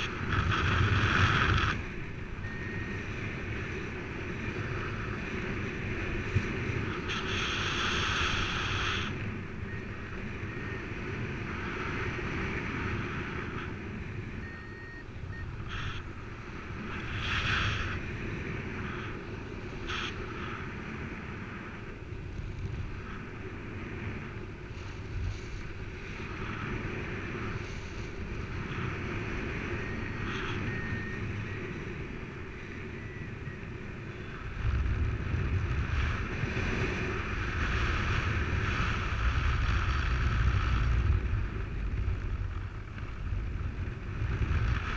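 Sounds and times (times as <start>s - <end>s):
wind rushing over microphone: 0.0s - 44.9s.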